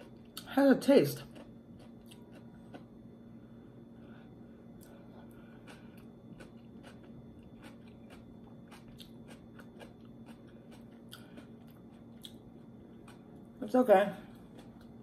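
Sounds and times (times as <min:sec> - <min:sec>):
person chewing crunchy food: 0:01.2 - 0:03.0, 0:04.6 - 0:13.6, 0:14.2 - 0:15.0.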